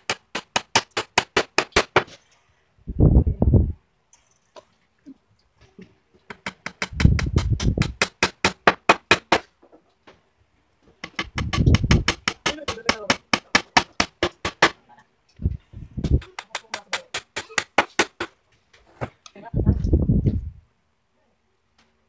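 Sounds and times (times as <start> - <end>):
hammer driving nails into wood: 0.0 - 2.2, 6.3 - 9.5, 11.0 - 14.8, 16.0 - 18.4.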